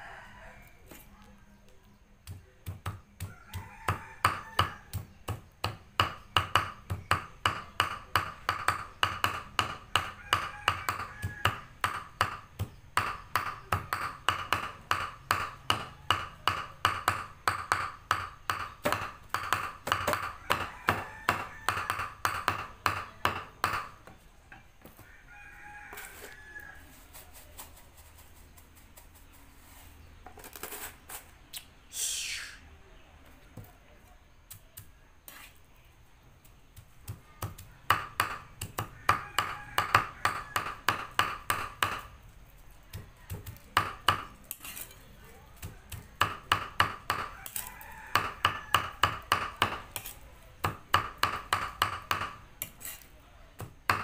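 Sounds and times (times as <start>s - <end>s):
rooster crowing: 0.0s - 1.0s, 3.2s - 5.0s, 10.0s - 11.8s, 20.1s - 22.2s, 24.8s - 27.0s, 38.6s - 41.0s, 47.1s - 49.8s
cleaver chopping on wooden block: 2.2s - 24.1s, 37.0s - 42.1s, 42.9s - 44.7s, 45.6s - 53.0s, 53.6s - 54.0s.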